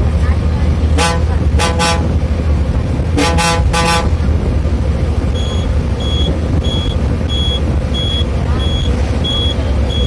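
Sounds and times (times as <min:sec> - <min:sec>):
bus engine drone: 0:00.0 - 0:10.0
bus horn tooting: 0:00.9 - 0:02.2, 0:03.1 - 0:04.3.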